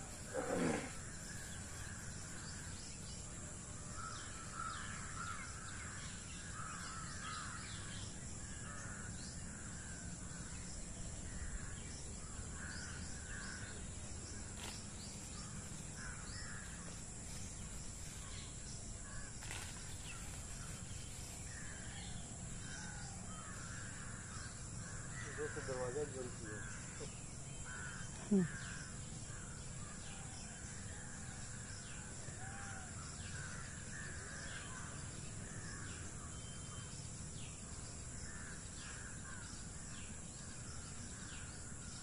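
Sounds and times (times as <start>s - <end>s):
crows cawing: 23.3s - 27.1s.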